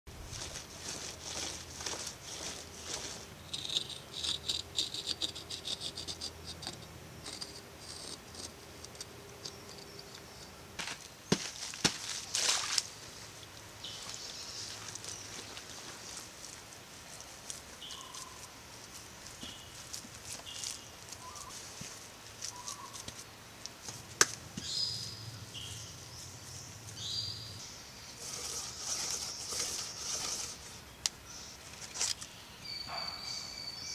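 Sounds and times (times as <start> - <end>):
tool scraping dry dirt: 0.2 - 12.8, 28.0 - 32.4.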